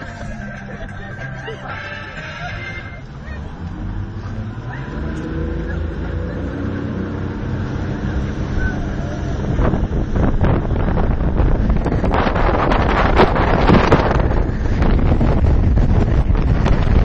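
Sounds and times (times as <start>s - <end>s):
wind buffeting microphone: 7.3s - 17.0s.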